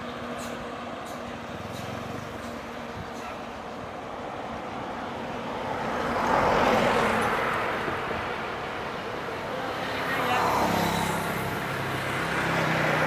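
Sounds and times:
vehicle passing by: 4.3s - 13.0s.

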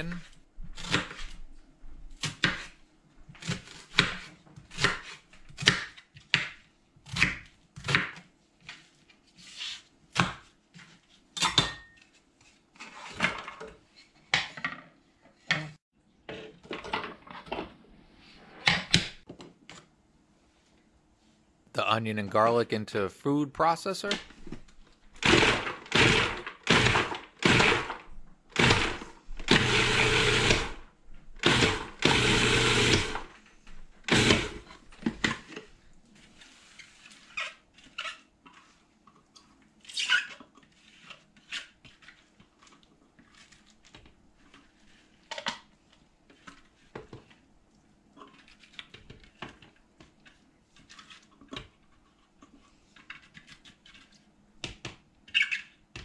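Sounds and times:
food processor chopping: 25.2s - 30.8s, 31.4s - 33.3s, 34.0s - 34.7s.

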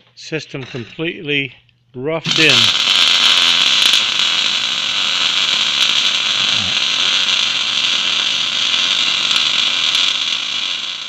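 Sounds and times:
welding arc hissing: 2.2s - 11.0s.

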